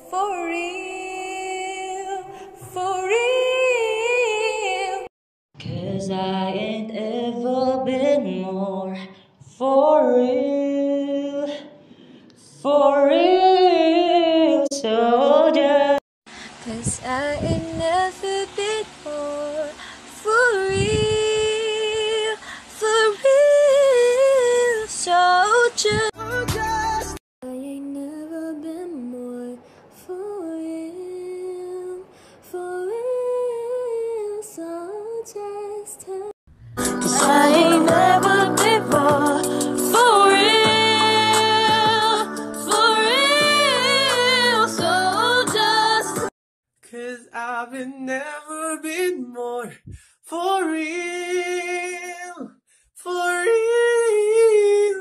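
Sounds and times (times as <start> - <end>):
person singing unaccompanied: 12.7 - 29.5, 32.6 - 46.3.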